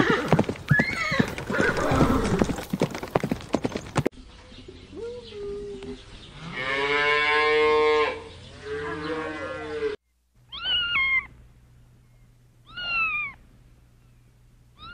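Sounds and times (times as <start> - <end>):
cat meowing: 10.5 - 11.3.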